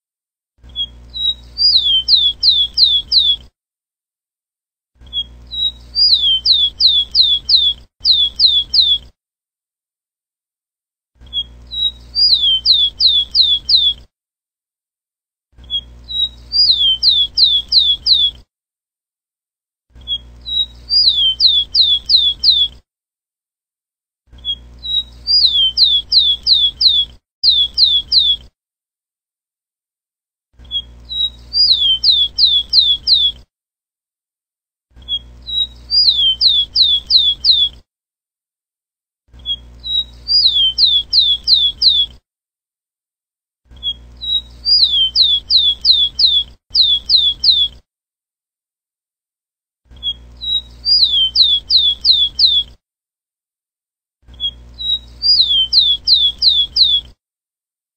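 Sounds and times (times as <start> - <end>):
sparrow singing whistles: 0.8 - 3.4, 5.1 - 9.1, 11.3 - 14.0, 15.7 - 18.4, 20.1 - 22.8, 24.4 - 28.4, 30.7 - 33.4, 35.0 - 37.8, 39.4 - 42.1, 43.8 - 47.8, 50.0 - 52.7, 54.4 - 57.1.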